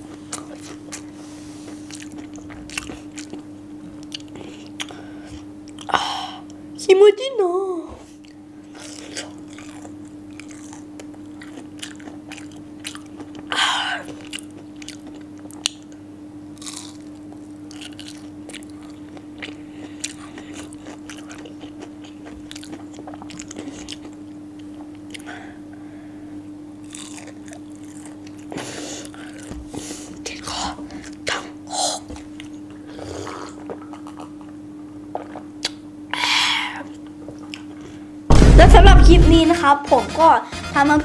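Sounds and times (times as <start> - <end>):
chewing and crunching: 0.0 - 5.9, 8.0 - 25.3, 26.8 - 35.8, 36.9 - 38.0
steady low hum: 0.0 - 41.0
wet mouth sounds: 30.4 - 37.7.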